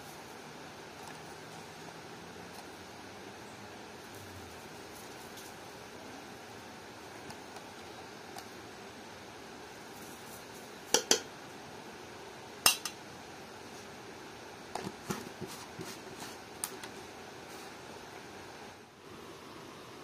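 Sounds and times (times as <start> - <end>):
metal spoon clinking on pot: 12.6 - 13.0.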